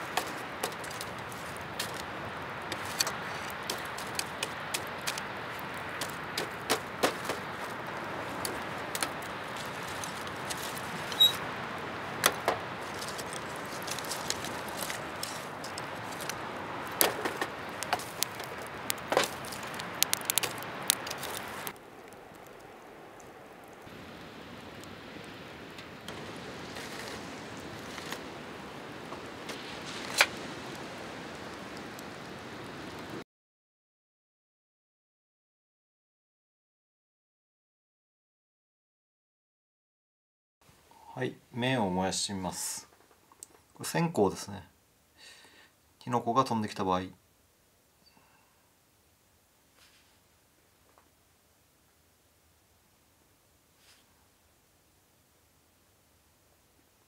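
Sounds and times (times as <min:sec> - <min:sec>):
steady fire hiss: 0:00.0 - 0:33.2, 0:40.6 - 0:57.0
wood fire crackling and popping: 0:00.0 - 0:33.2.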